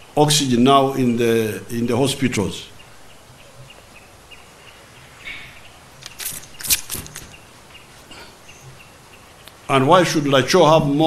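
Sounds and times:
faint bird chirps: 2.6 - 9.8.

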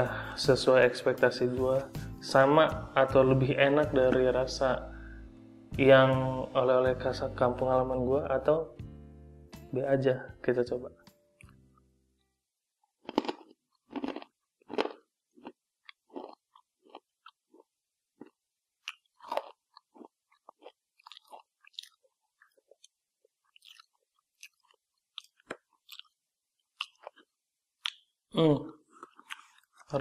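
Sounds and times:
person chewing crisp chips: 12.9 - 28.1, 28.9 - 30.0.

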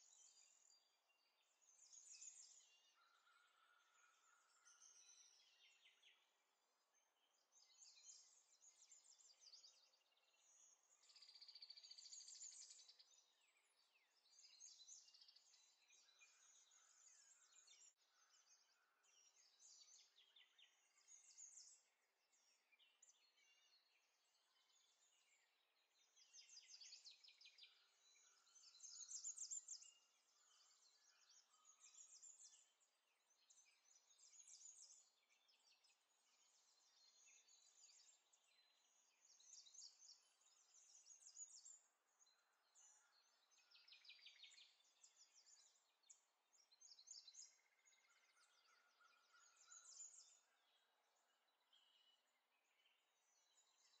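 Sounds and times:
faint birdsong chirps and trills: 0.0 - 54.0.

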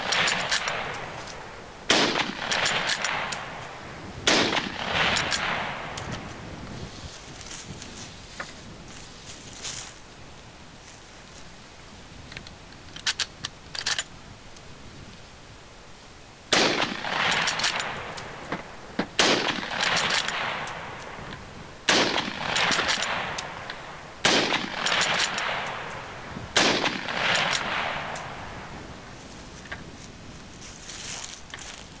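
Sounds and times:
rifle shots echoing: 0.0 - 6.3, 16.5 - 21.3, 21.9 - 28.8.

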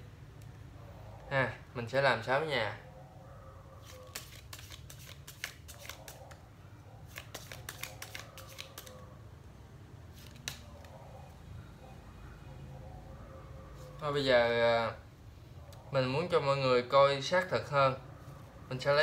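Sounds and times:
playing cards shuffling: 3.8 - 6.4, 7.1 - 9.0, 10.1 - 11.0.

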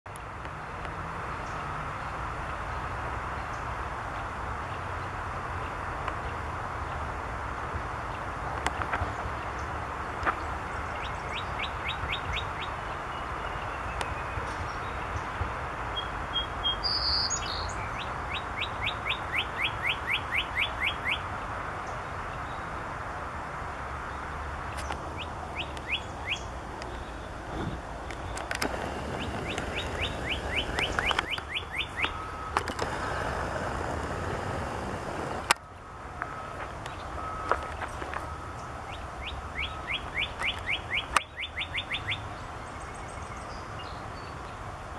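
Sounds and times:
steady background hiss: 1.2 - 44.9
bird singing whistles: 16.0 - 21.2, 25.6 - 26.5, 29.1 - 32.5, 38.9 - 42.2.

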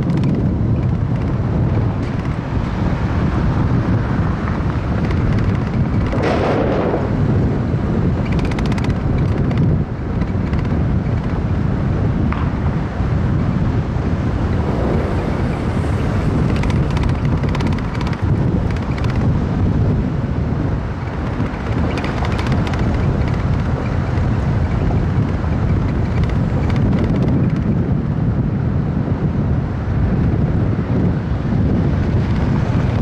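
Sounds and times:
city traffic noise: 0.0 - 33.0
wind rumble on microphone: 0.0 - 33.0.

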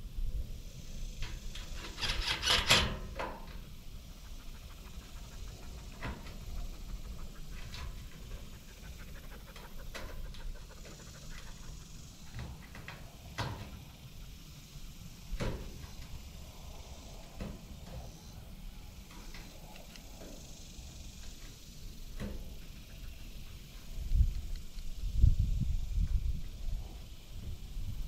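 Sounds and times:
wind rumbling on microphone: 22.2 - 28.0.

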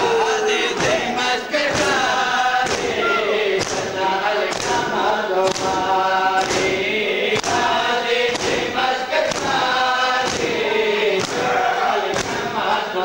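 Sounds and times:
men chanting in chorus: 0.0 - 13.0
hands slapping chests: 5.4 - 5.8, 9.2 - 9.6, 10.2 - 10.6.

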